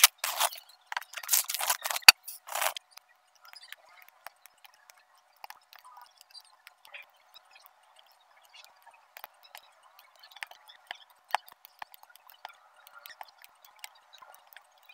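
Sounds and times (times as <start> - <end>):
plastic film crinkling: 0.0 - 2.8.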